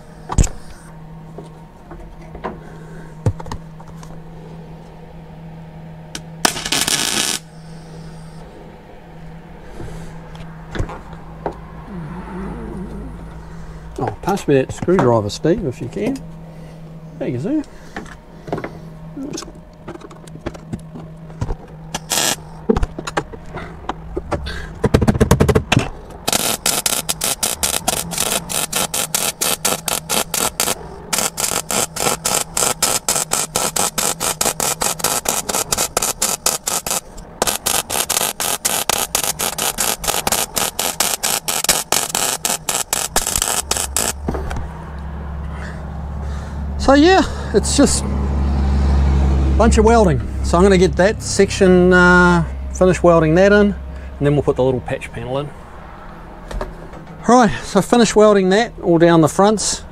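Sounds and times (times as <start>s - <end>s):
welder crackling: 6.4s - 7.5s, 21.9s - 22.6s, 26.2s - 44.4s.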